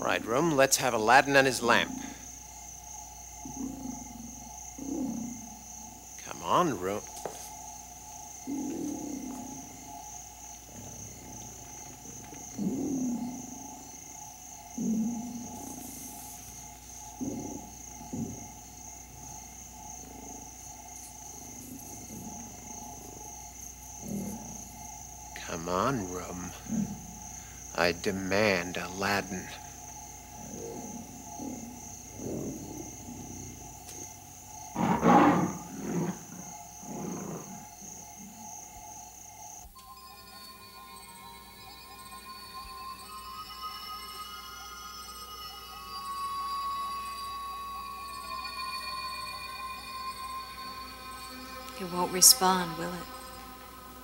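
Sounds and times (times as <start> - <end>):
insects chirring: 0.0 - 54.0
lion growl: 3.4 - 6.8, 8.4 - 25.0, 25.6 - 28.1, 29.2 - 38.7.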